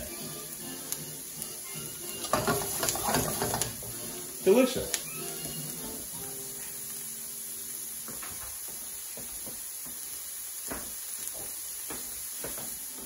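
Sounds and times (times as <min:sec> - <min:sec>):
vegetables sizzling in oil: 0:00.0 - 0:13.0
pops and crackles: 0:04.9 - 0:05.2.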